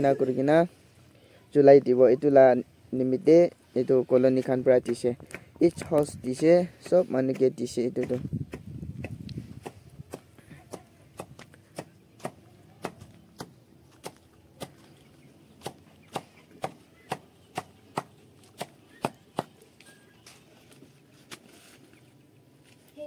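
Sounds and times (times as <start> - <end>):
knife chopping leafy greens: 4.3 - 14.8.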